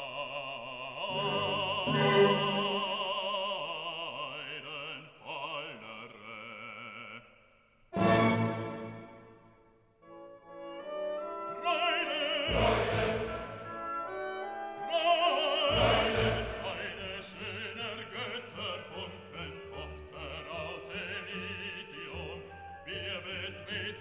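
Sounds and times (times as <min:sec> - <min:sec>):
operatic singing: 0:00.0 - 0:09.3, 0:11.1 - 0:24.0
orchestra playing: 0:01.1 - 0:03.0, 0:08.0 - 0:09.5, 0:10.1 - 0:23.4.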